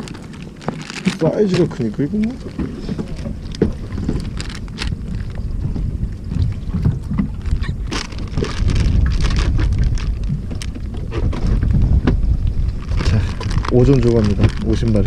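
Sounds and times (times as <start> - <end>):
plastic bag crinkling: 0.0 - 5.4, 7.3 - 11.0, 12.8 - 15.0
low rumble: 0.0 - 15.0
wind on microphone: 0.0 - 15.0.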